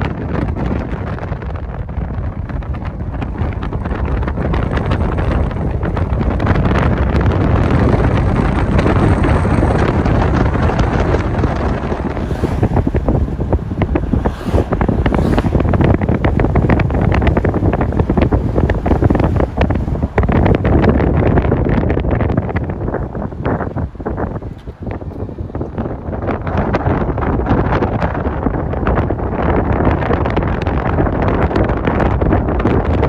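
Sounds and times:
strong wind on microphone: 0.0 - 33.0.

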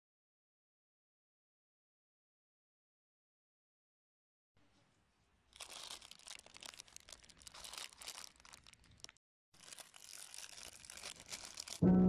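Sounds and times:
plastic packaging crinkling: 5.5 - 12.0.

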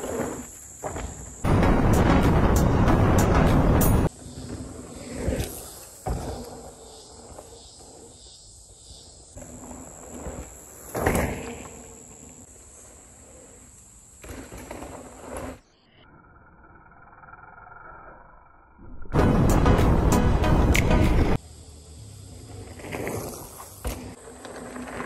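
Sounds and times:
high insect buzz: 0.0 - 18.2
bike landing thuds: 5.4 - 6.6.

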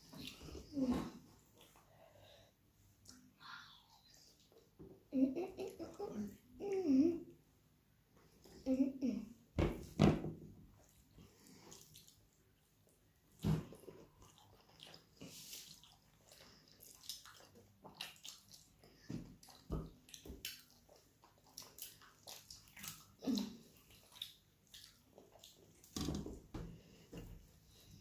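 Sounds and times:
wet chewing and lip-smacking: 10.8 - 26.0.

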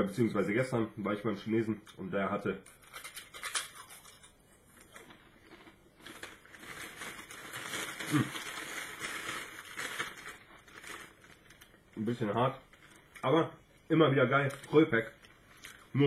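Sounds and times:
crunching and chewing crackers: 2.9 - 13.3, 14.5 - 16.0.

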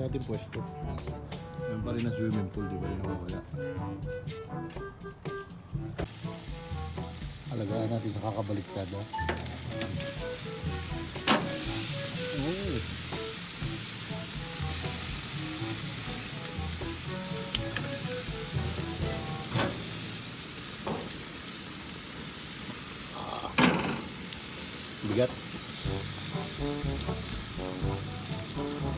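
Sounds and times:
faint background music: 0.0 - 21.2, 25.0 - 28.9
ribs sizzling on a grill: 6.0 - 28.9
tongs knocking metal grate: 11.1 - 11.6, 19.0 - 20.0, 20.8 - 21.2, 23.6 - 24.1.

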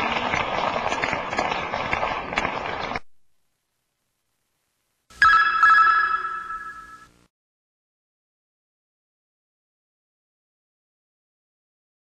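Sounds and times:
crowd applause: 0.0 - 3.0
electronic chime ringing: 5.2 - 7.2.

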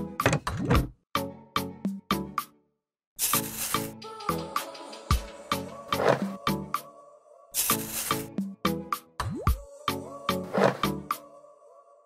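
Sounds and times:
background music with a beat: 1.2 - 2.5, 3.2 - 7.0, 7.6 - 11.3.

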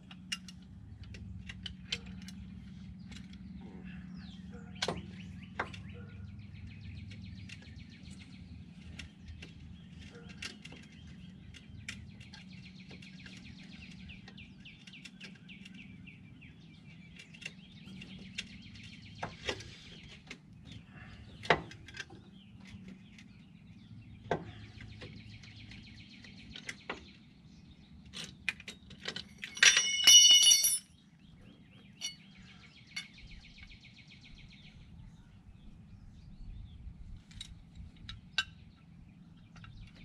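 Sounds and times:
tools and brake parts clicking: 0.0 - 20.8, 21.4 - 23.5, 27.8 - 31.0, 31.8 - 33.8, 37.2 - 40.0
birds chirping: 0.0 - 40.0.

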